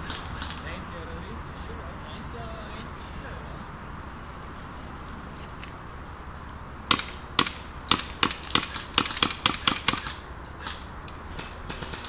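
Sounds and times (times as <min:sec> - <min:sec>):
airsoft pistol shots: 0:06.9 - 0:12.0.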